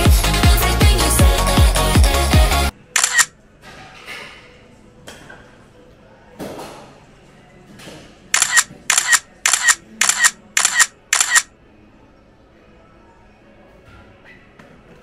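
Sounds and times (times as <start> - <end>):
sharp double clicks: 3.0 - 3.3, 8.4 - 11.5.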